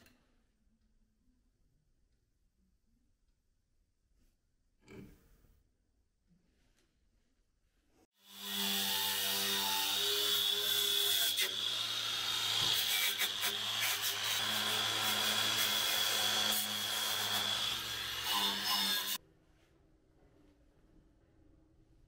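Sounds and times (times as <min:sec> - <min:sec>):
angle grinder grinding steel: 0:08.2 - 0:19.2.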